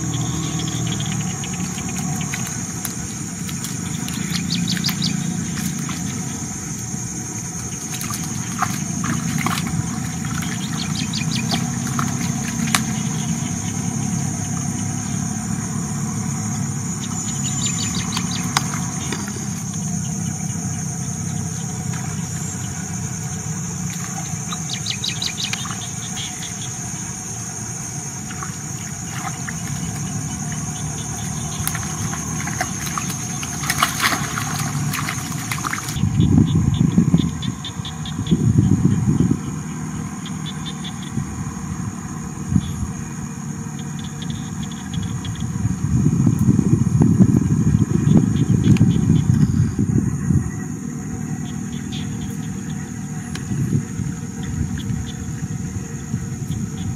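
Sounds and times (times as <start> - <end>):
birds chirping: 0.0 - 56.9.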